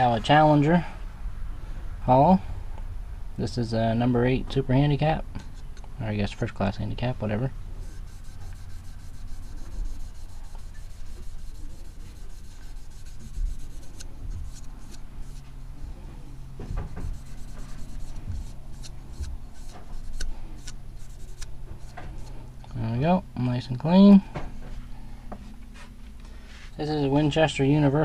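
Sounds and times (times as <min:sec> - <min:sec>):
cotton ball rubbing plastic: 0:07.7 - 0:22.3.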